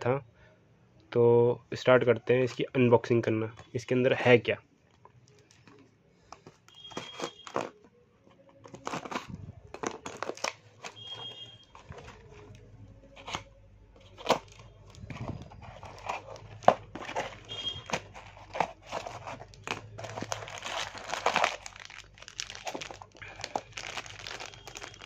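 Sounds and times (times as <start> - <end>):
cardboard and plastic tearing: 6.7 - 7.8, 8.6 - 25.0
plastic bag crinkling: 8.6 - 12.6, 14.0 - 25.0.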